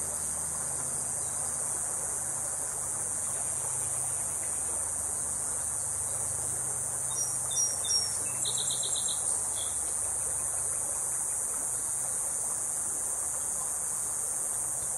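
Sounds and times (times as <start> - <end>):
insects droning: 0.0 - 14.9
songbird calling: 6.1 - 10.8.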